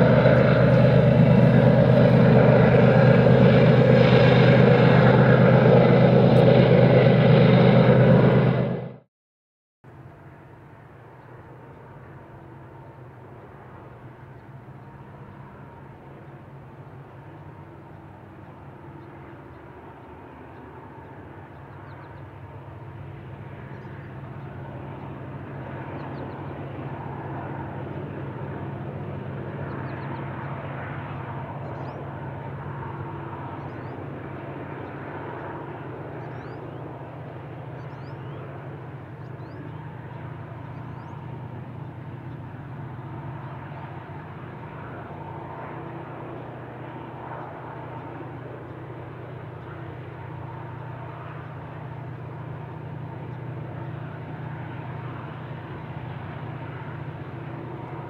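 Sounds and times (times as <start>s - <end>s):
train rumble: 0.0s - 9.0s
freight locomotive engine drone: 0.0s - 9.1s, 9.9s - 58.0s.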